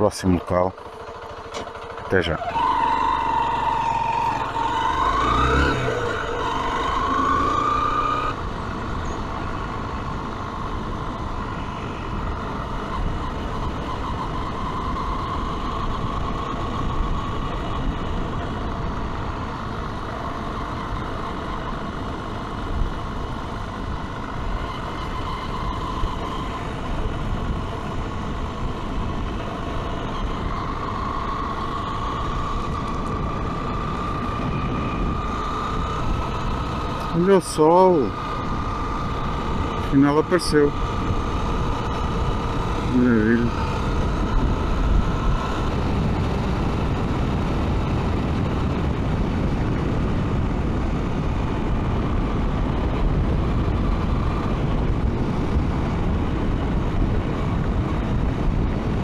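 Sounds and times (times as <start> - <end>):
motorcycle engine accelerating: 0.0 - 59.0
wind noise: 21.0 - 59.0.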